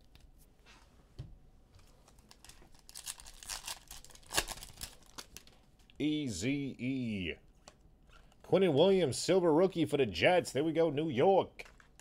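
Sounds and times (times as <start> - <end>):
foil wrapper crinkling: 2.0 - 5.6
foil tearing snap: 3.5 - 5.3.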